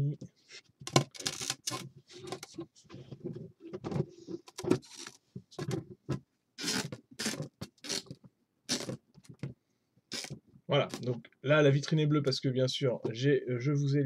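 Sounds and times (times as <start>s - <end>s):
plastic panels scraping and clicking: 0.8s - 9.6s.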